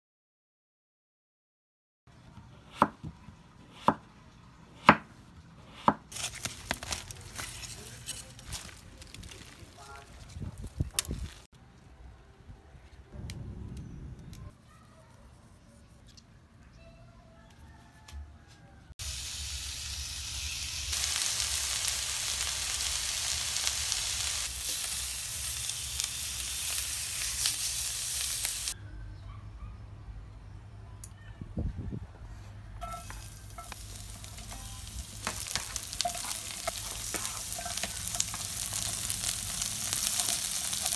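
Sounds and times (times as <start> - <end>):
knife chopping on wooden board: 3.7 - 4.0, 4.8 - 6.1
fish sizzling on grill pan: 19.0 - 28.8, 32.8 - 40.9.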